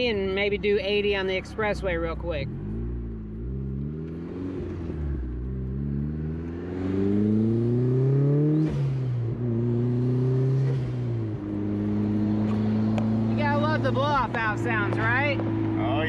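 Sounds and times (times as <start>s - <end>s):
car engine accelerating: 0.0s - 16.0s.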